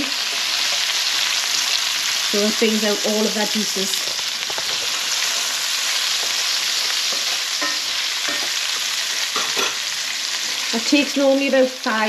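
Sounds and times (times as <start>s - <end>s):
vegetables sizzling in a pan: 0.0s - 12.0s
spoon scraping a pan: 4.0s - 10.6s.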